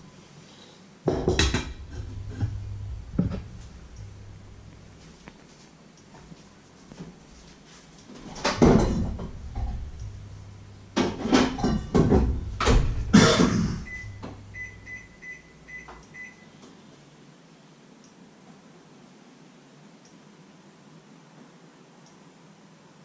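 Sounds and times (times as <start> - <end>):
cupboards and cookware knocking: 1.1 - 3.8, 8.4 - 14.4.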